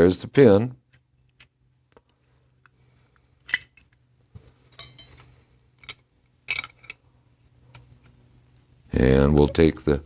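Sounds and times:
small metal parts clinking: 0:04.7 - 0:05.2, 0:05.8 - 0:07.0.

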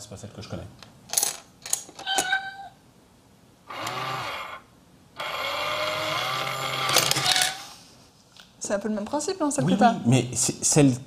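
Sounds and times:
recorded cat meows: 0:02.0 - 0:02.8
small motor humming: 0:03.7 - 0:04.6, 0:05.2 - 0:07.7.

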